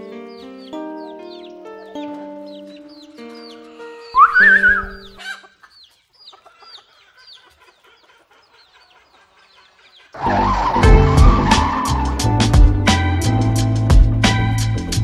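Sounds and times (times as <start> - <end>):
quick high bird chirps: 2.5 - 7.5
loud music with heavy beat: 10.8 - 15.0.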